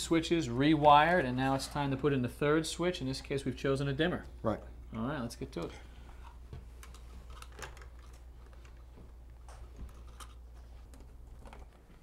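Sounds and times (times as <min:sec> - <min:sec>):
low steady hum: 0:00.0 - 0:12.0
small clicks of handling wires: 0:05.6 - 0:11.9.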